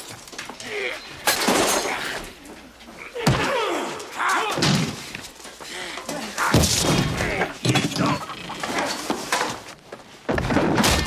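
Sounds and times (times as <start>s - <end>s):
men grunting and crying out: 0.6s - 5.1s, 5.7s - 9.1s.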